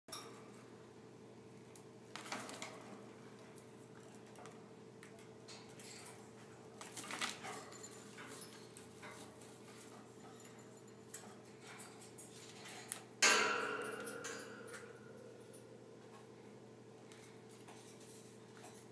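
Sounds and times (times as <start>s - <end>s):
parrot clattering in wire cage: 5.5s - 15.7s
steady low hum: 7.7s - 18.9s.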